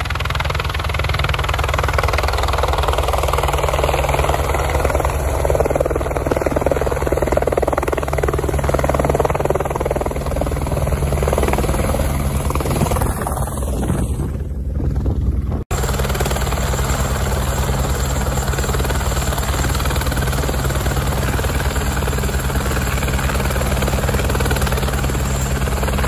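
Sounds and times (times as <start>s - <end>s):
helicopter rotor beating: 0.0s - 26.0s
wind buffeting microphone: 0.2s - 15.7s.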